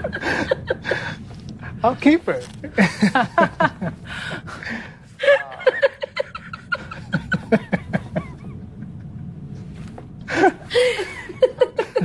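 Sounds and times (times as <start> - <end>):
man laughing: 2.7 - 4.0, 5.2 - 9.1, 10.3 - 12.0
woman laughing: 5.2 - 9.1, 10.3 - 12.0.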